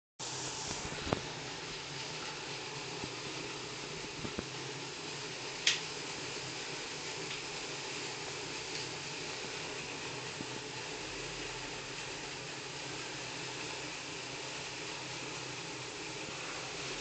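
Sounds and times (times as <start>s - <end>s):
bike tyre whirring on roller trainer: 0.3s - 17.0s.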